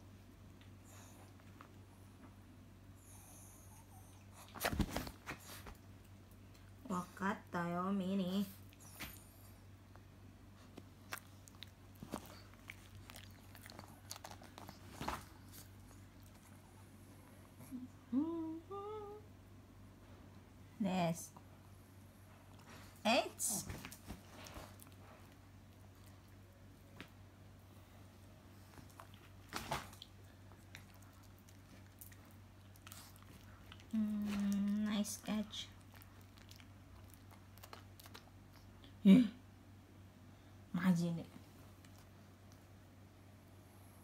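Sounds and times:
dog chewing: 10.9 - 16.5, 28.8 - 38.7
dog chewing with wet clicks: 11.0 - 14.8, 35.3 - 38.7.

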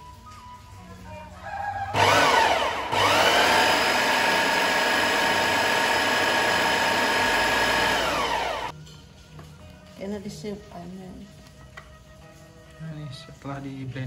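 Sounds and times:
electric blender grinding: 1.9 - 8.7.

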